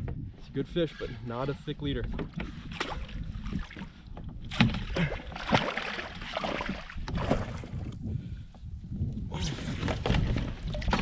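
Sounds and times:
water splashing: 2.3s - 7.8s.

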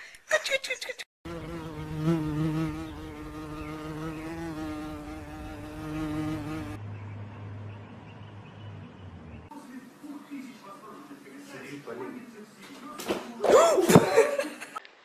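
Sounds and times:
fly buzzing: 1.3s - 6.8s.

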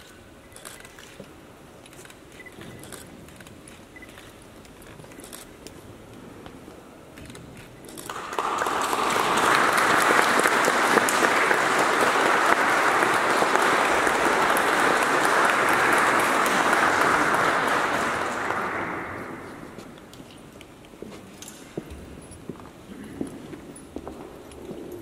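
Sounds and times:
audience applause: 8.0s - 20.0s.

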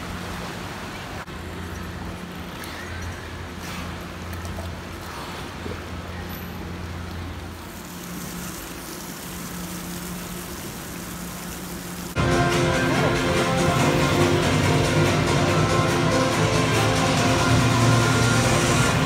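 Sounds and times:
churning water: 0.0s - 19.0s
steady low hum: 0.0s - 19.0s
guitar music: 12.2s - 19.0s.

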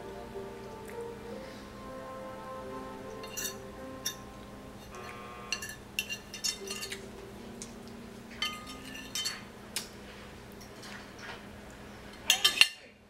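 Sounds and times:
fork scraping and clinking on plate: 3.2s - 4.2s, 4.8s - 7.0s, 8.4s - 9.5s.

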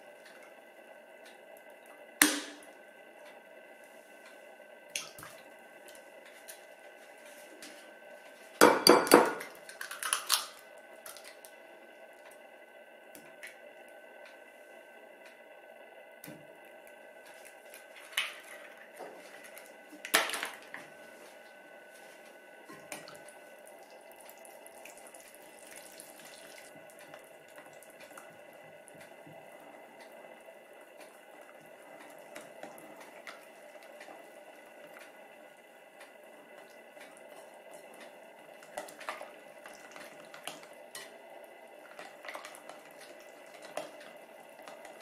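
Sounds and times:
faint steady hum: 0.0s - 45.0s
whisk sloshing batter: 41.8s - 45.0s.

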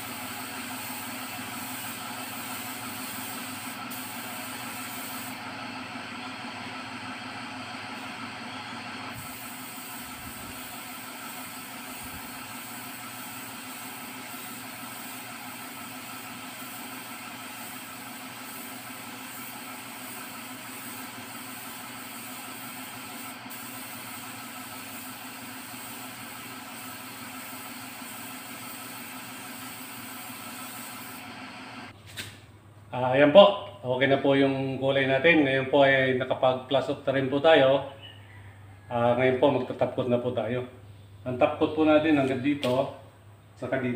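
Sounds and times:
spray gun hissing: 0.0s - 5.5s, 9.1s - 31.5s
air compressor running: 0.0s - 32.0s.

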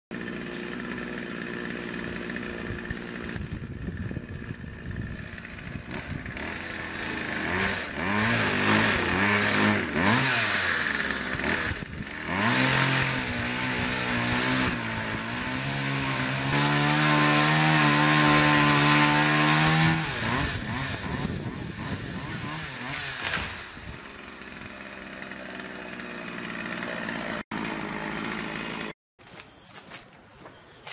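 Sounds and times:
chainsaw revving and cutting: 0.1s - 29.0s.

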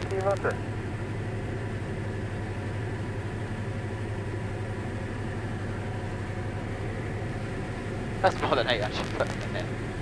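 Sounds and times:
aircraft engine droning: 0.0s - 10.0s.

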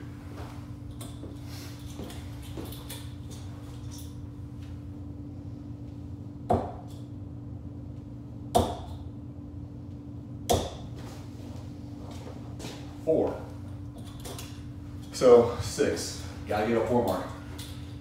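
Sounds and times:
darts thudding into dartboard: 6.5s - 6.9s, 8.6s - 9.0s, 10.5s - 10.9s.

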